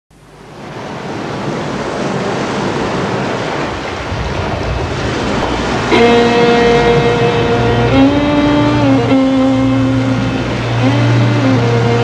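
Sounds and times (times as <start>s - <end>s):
water rushing along boat hull: 0.2s - 12.0s
wind on microphone: 0.6s - 12.0s
music with held note: 5.8s - 12.0s.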